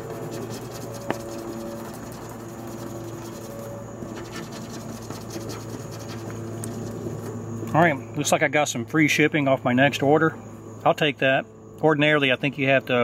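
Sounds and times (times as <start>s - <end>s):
scratch card rasping: 0.0s - 7.0s.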